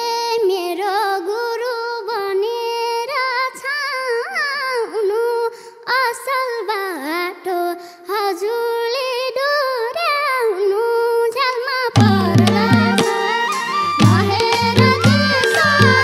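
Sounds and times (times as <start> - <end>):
girl singing unaccompanied: 0.0 - 16.0
band with hand drums: 12.0 - 16.0.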